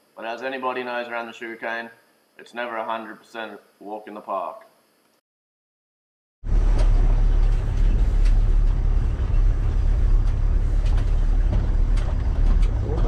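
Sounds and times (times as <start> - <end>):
vehicle engine and road rumble: 6.4 - 13.0
knocks and rattles: 6.5 - 13.0.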